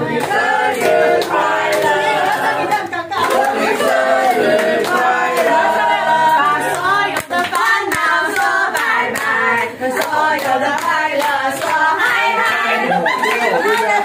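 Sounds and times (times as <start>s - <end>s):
group singing a celebration song: 0.0s - 14.0s
hand-clapping in time: 0.2s - 2.5s, 3.2s - 5.6s, 6.2s - 9.4s, 10.0s - 12.2s.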